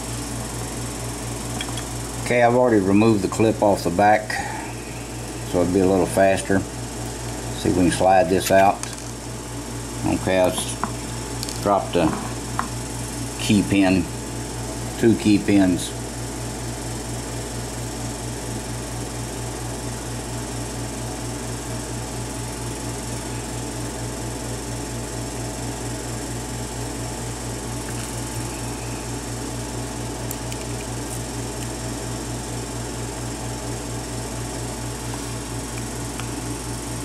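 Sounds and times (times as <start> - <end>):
pulsing mechanical hum: 0.0 - 37.0.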